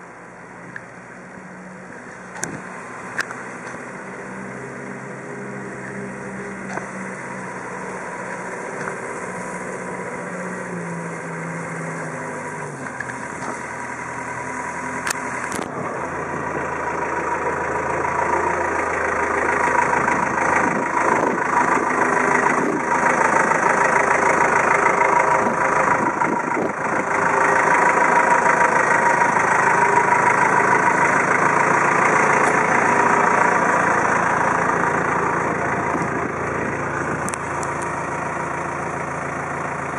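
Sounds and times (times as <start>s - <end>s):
forklift diesel engine running: 0.0s - 39.9s.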